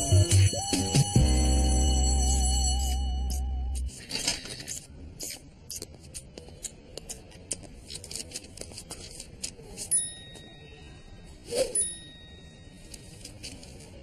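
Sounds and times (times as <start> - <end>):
music: 0.0 - 3.9.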